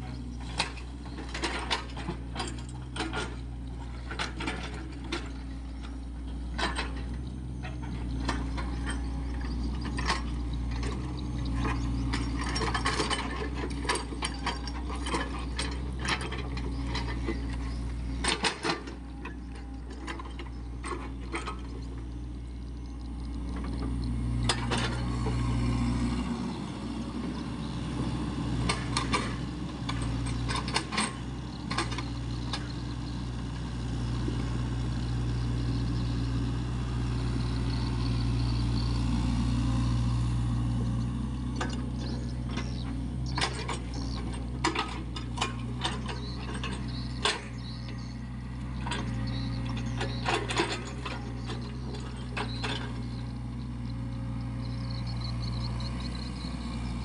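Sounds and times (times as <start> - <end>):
excavator diesel engine running: 0.0 - 57.0
metallic clanks and knocks: 0.4 - 22.0, 41.6 - 48.1, 48.8 - 53.3.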